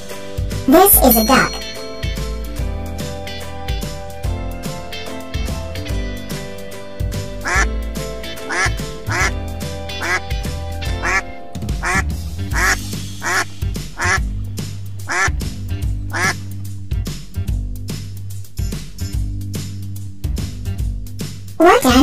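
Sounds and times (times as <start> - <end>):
background music: 0.0 - 22.0
ducks quacking: 7.4 - 7.7, 8.5 - 9.4, 11.0 - 11.2, 11.8 - 14.2.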